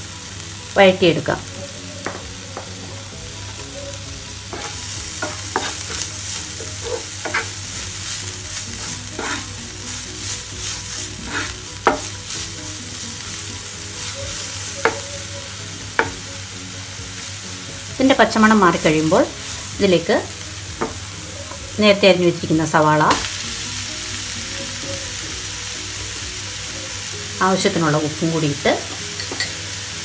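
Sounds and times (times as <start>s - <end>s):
vegetables sizzling in hot oil: 0.0s - 30.0s
wooden spatula scraping pan: 4.5s - 7.6s, 8.7s - 9.6s, 10.6s - 12.1s.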